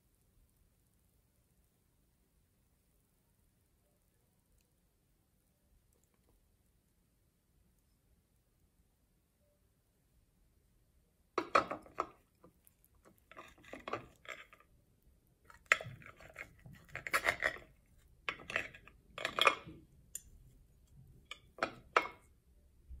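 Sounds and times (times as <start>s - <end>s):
utensils clinking on baking tray: 15.5s - 20.4s.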